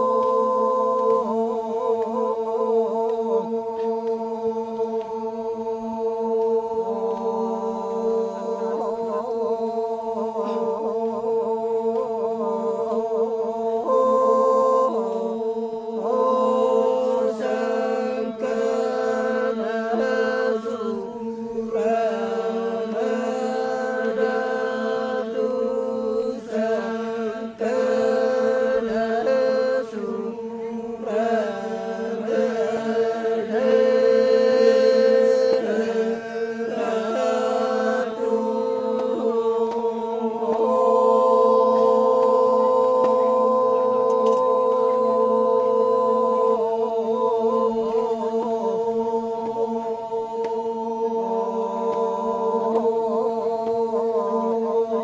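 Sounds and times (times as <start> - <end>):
men chanting in unison: 0.0 - 55.0.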